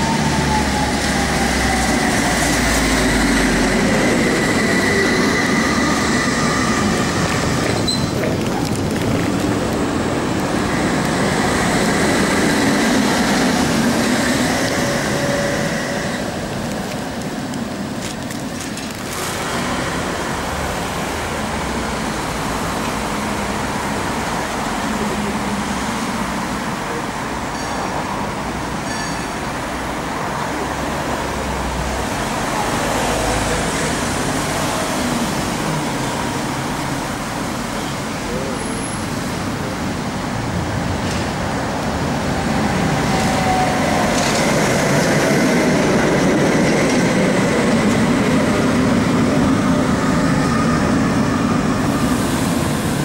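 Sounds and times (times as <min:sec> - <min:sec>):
street traffic noise: 0:00.0 - 0:53.0
tram passing with whining hum: 0:00.0 - 0:53.0.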